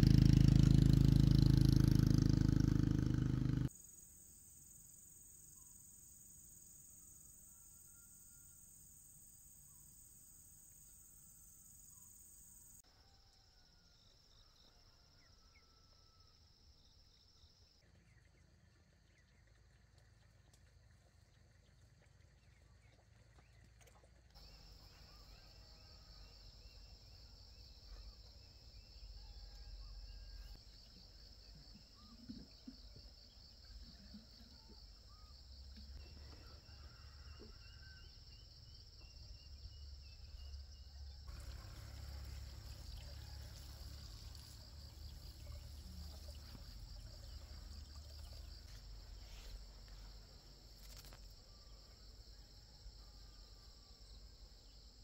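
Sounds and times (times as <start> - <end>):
insects trilling: 24.4 - 55.0.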